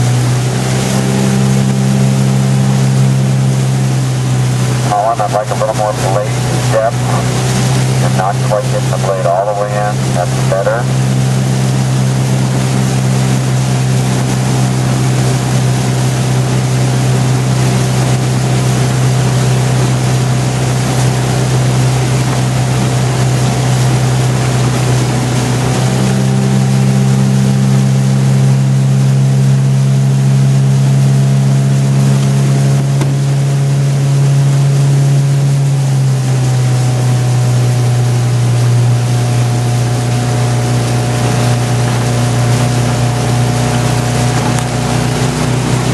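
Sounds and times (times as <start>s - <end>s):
outboard motor running: 0.0s - 45.9s
wind and water hiss: 31.0s - 45.9s.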